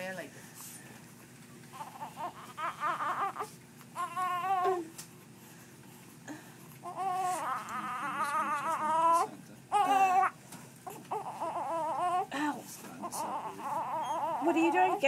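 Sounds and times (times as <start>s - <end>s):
newborn baby crying: 1.7s - 4.9s, 6.8s - 15.0s.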